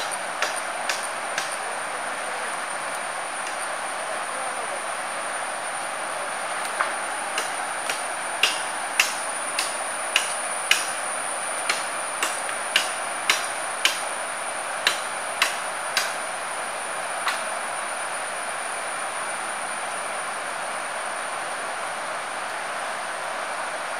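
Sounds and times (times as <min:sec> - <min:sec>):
palm leaves snapping: 0:00.0 - 0:01.6, 0:06.5 - 0:11.0, 0:11.6 - 0:14.1, 0:14.8 - 0:16.2, 0:17.2 - 0:17.5.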